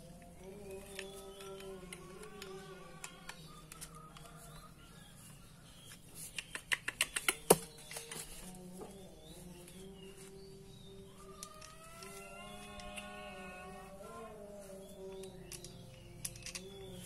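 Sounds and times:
sharp metal clicks and taps: 6.3s - 8.0s, 15.2s - 16.8s.

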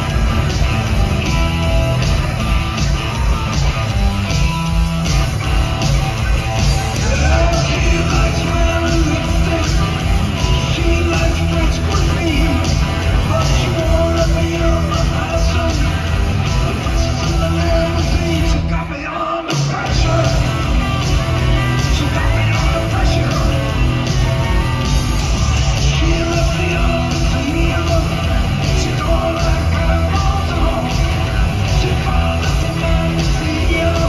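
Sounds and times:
bass guitar: 0.0s - 34.0s
drum kit: 0.0s - 34.0s
electric guitar: 0.0s - 34.0s.

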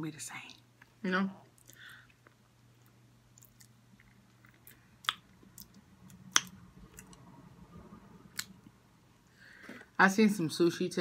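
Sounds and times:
faint low hum: 0.0s - 11.0s
quiet chewing: 0.8s - 7.2s.

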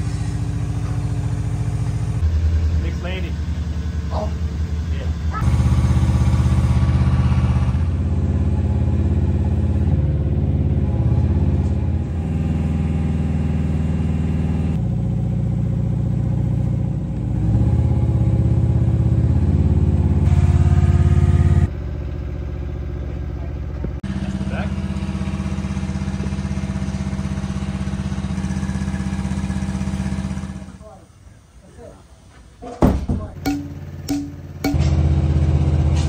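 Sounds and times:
crane engine running under load: 0.0s - 31.6s, 33.4s - 36.0s.

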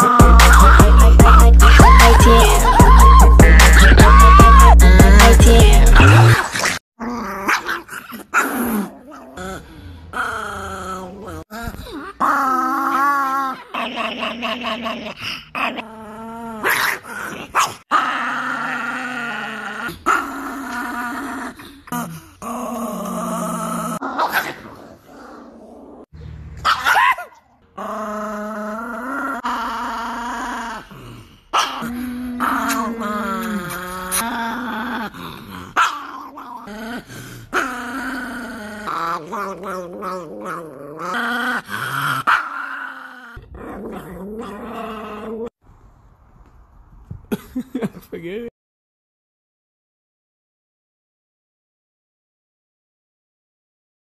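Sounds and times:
small dog growling and snarling: 3.5s - 26.1s, 26.8s - 45.6s.

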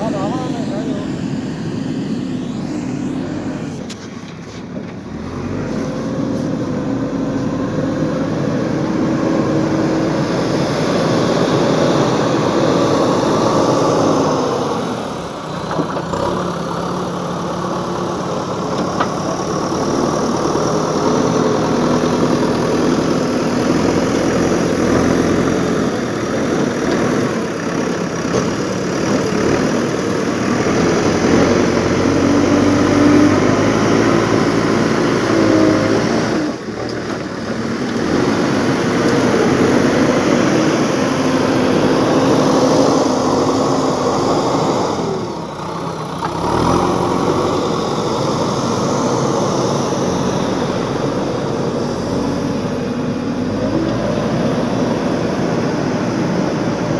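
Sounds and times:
backhoe diesel engine running: 0.0s - 56.9s.

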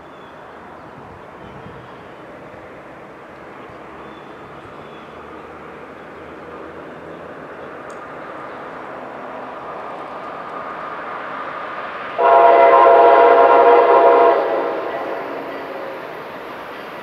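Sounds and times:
train rumble: 0.0s - 17.0s
train horn blast: 12.2s - 16.3s.

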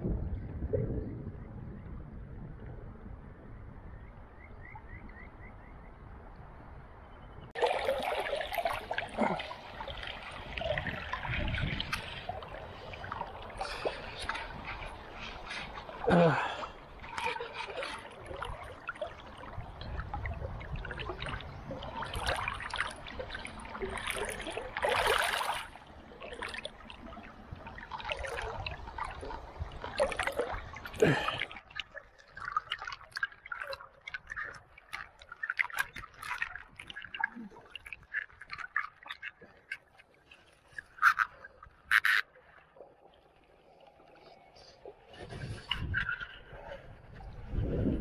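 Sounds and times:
low rumble: 0.0s - 4.4s
river water splashing: 7.5s - 47.7s
water dripping and trickling: 7.5s - 48.0s.

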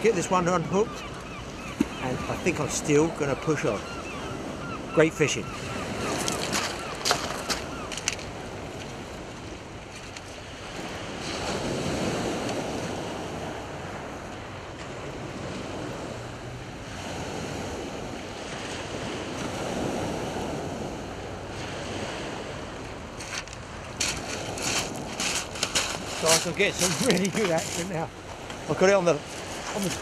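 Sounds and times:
waves washing over shingle: 5.8s - 14.1s, 18.4s - 30.0s.

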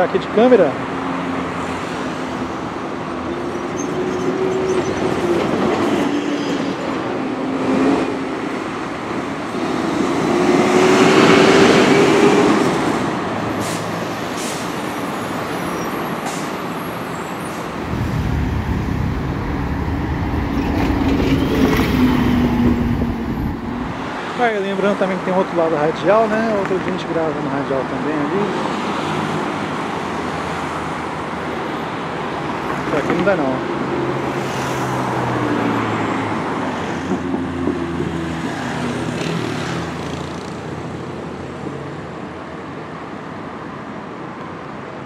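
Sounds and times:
engine and traffic noise: 0.0s - 45.0s
large vehicle passing by: 17.4s - 24.4s
deep rumble: 17.8s - 24.0s.

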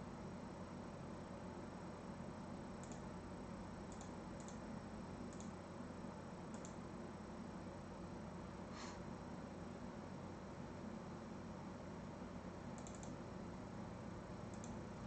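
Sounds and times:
low room hum: 0.0s - 15.0s
computer mouse clicks: 2.8s - 3.1s, 3.9s - 4.6s, 5.3s - 5.6s, 6.5s - 6.8s, 12.8s - 13.2s, 14.5s - 14.8s.

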